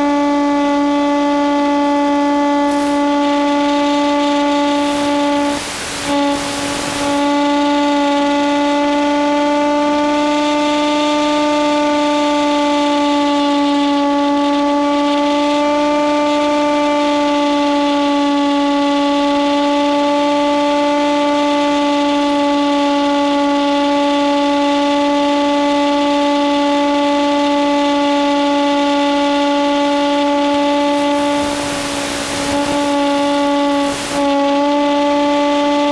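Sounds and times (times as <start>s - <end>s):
electric motor and propeller drone: 0.0s - 35.9s
radio static bursts: 2.7s - 7.4s, 30.5s - 34.3s.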